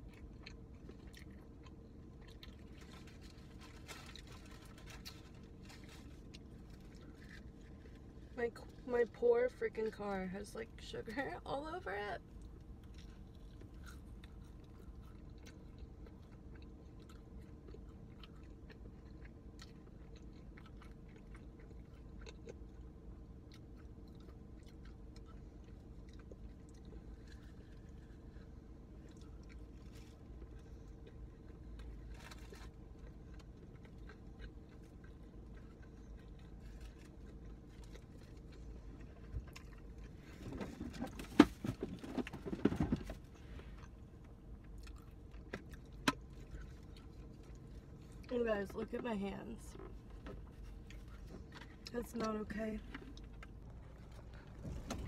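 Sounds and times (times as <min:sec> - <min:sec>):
low hum inside car: 0:00.0 - 0:55.0
faint clicks and rustles: 0:49.6 - 0:55.0.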